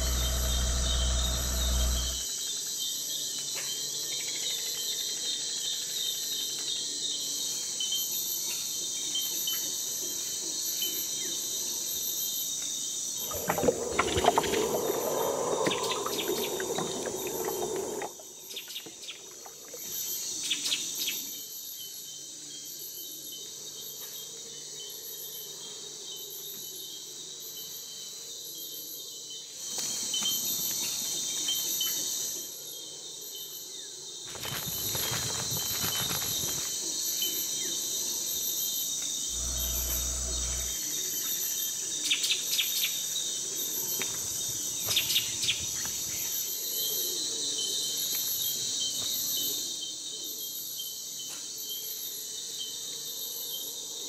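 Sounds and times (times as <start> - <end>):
pulsing insect buzz: 0.0 - 2.3, 13.2 - 18.6, 39.3 - 41.0
high-pitched insect chorus: 0.0 - 54.0.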